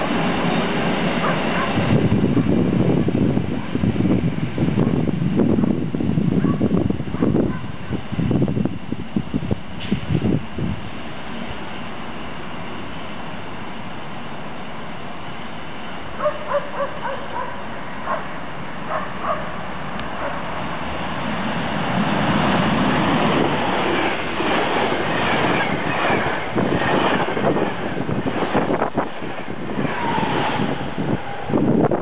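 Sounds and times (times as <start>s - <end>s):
dog barks: 1.2s - 1.8s, 6.4s - 6.6s, 16.2s - 18.3s, 18.9s - 19.6s, 20.2s - 20.4s
train wheels clattering over rails: 19.0s - 31.6s.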